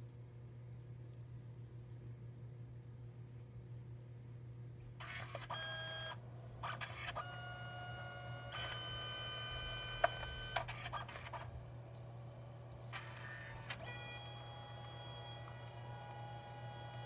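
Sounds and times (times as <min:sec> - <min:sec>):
printer motor whirring: 0:05.0 - 0:17.0.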